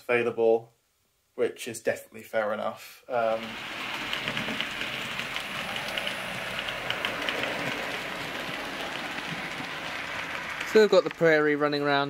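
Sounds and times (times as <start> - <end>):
model train rolling on track: 3.1 - 12.0
wheels clicking over rail joints: 3.2 - 12.0.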